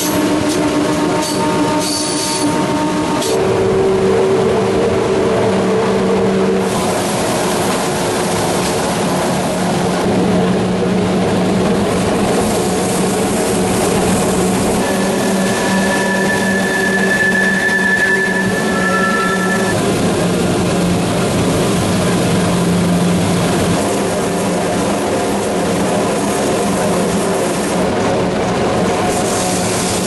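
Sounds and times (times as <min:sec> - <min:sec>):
train wheels rumbling on rail: 0:00.0 - 0:30.0
thin high wheel whine: 0:14.6 - 0:19.8.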